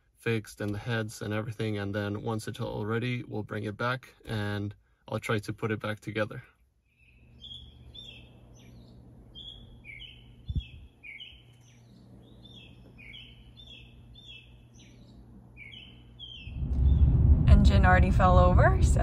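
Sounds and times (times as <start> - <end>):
low steady hum: 0.0 - 19.0
songbird chirping: 6.7 - 17.4.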